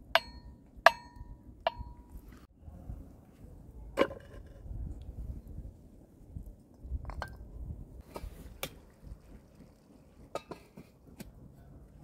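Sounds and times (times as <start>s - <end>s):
pot and lid clinking: 10.3s - 10.8s.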